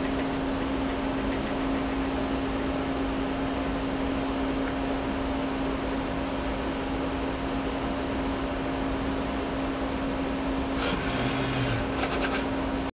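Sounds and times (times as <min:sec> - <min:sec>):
robot cell humming: 0:10.8 - 0:12.3
robot arm motors whirring: 0:10.8 - 0:12.5.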